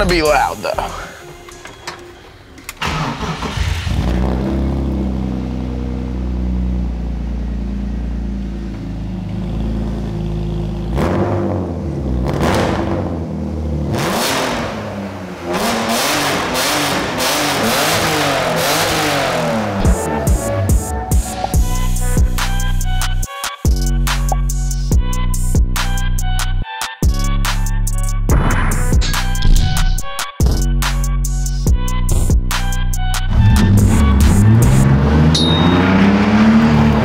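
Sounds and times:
car engine idling: 0.1 - 12.3
car engine cranking and starting: 0.2 - 21.9
car engine revving: 2.7 - 23.2, 33.0 - 37.0.

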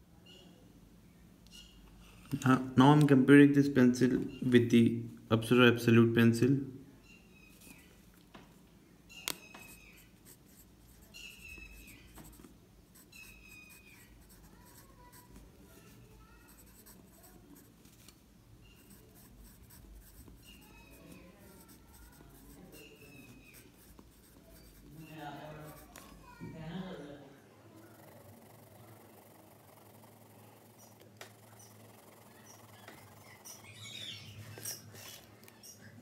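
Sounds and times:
pencil scratching on paper: 9.4 - 18.0, 18.6 - 26.2, 28.0 - 33.8, 34.5 - 35.2.

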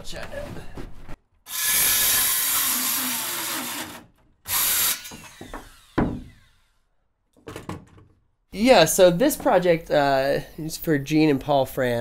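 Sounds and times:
circular saw cutting wood: 1.5 - 6.8.

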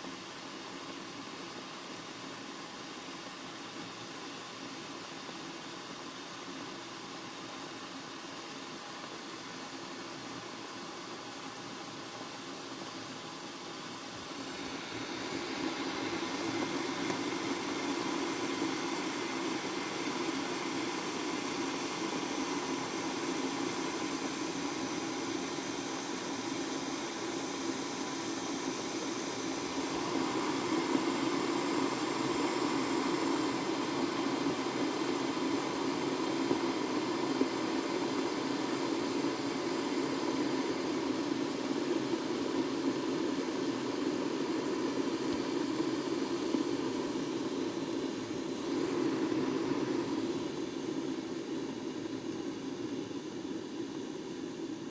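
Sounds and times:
electric kettle boiling water: 0.0 - 54.9.

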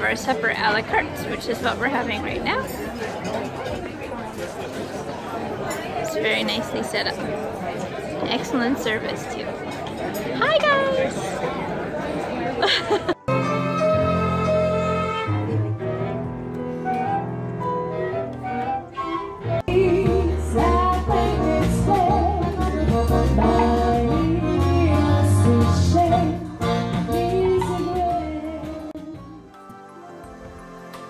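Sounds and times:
chamber music strings and flute: 13.3 - 20.0
accordion: 19.0 - 31.0
drums: 19.6 - 29.5
person singing: 19.6 - 29.6.

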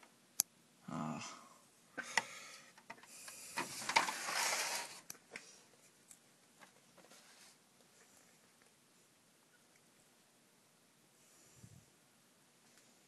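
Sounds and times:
rustling of cables: 2.1 - 8.8.

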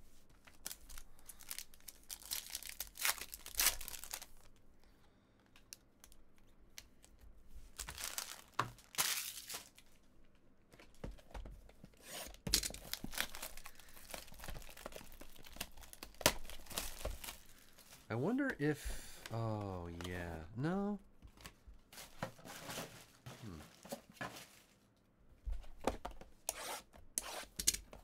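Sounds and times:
foil wrapper crinkling: 0.4 - 4.6, 7.7 - 9.9, 12.7 - 18.1
plastic shrink-wrap tearing: 0.6 - 4.5, 7.8 - 9.8, 12.7 - 17.8.

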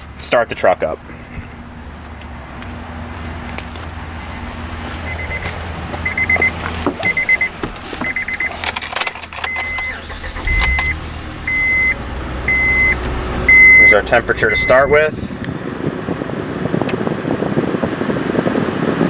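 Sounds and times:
low steady hum: 1.0 - 16.8
dashboard chime beeping: 5.0 - 8.6, 9.4 - 15.2.

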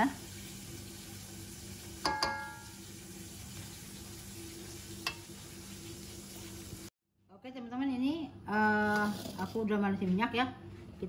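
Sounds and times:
hot pan hissing: 0.0 - 6.9
metal spatula knocking on wok: 2.0 - 2.7.

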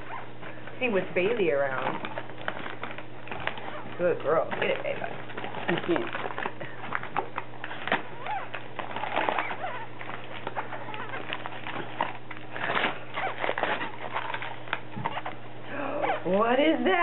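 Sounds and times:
wrapping paper crinkling and tearing: 0.0 - 15.6.

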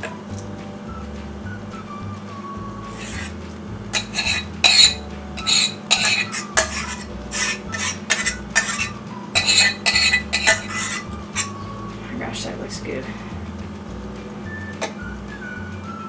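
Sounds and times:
spoon scraping metal saucepan: 2.9 - 11.6.

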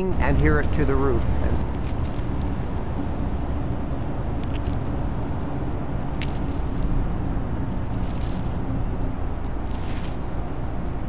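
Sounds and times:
steady low rumble: 0.0 - 11.0
paint roller swishing: 7.7 - 8.6, 9.5 - 10.2.

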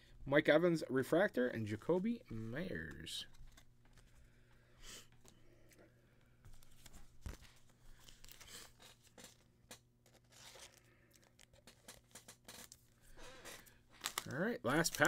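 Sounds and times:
foil wrappers crinkling: 6.5 - 15.0.

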